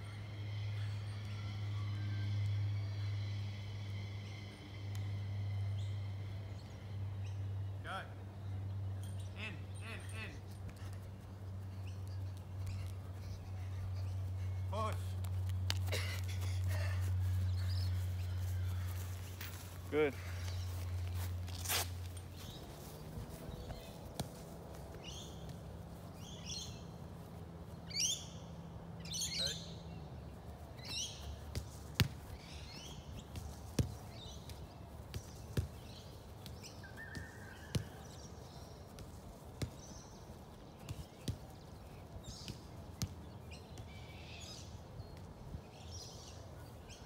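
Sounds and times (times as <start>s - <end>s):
birds chirping: 0.1s - 47.0s
football being kicked: 31.4s - 32.4s.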